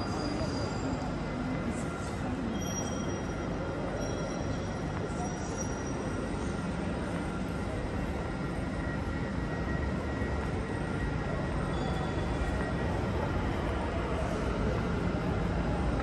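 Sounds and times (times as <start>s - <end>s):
railway station rumble: 0.0s - 16.0s.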